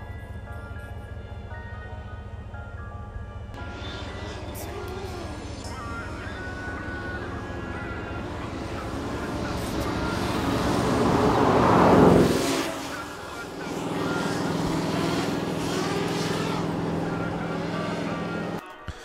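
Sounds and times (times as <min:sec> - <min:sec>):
drone humming: 0:03.4 - 0:18.6
sports car passing by: 0:03.6 - 0:18.6.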